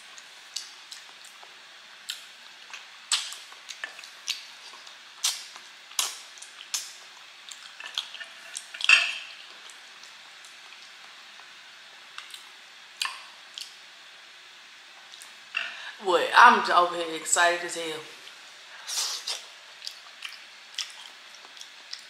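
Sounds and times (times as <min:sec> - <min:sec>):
wet mouth smacks and sucks: 0:05.2 - 0:06.9.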